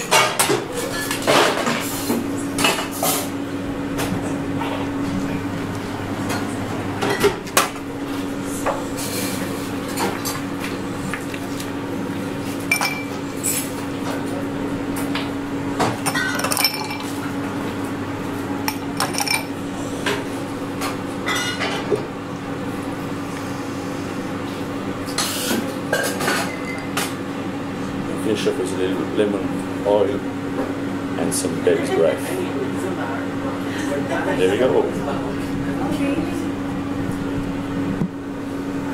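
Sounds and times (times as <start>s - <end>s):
steady low hum: 0.0s - 38.9s
glassware and bar tools clinking: 12.7s - 13.1s, 16.1s - 17.1s, 19.0s - 19.5s.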